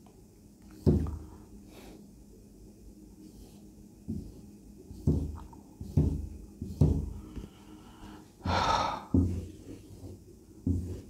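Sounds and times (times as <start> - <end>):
marker knocking on whiteboard: 0.8 - 1.3, 4.0 - 7.5, 9.0 - 11.0.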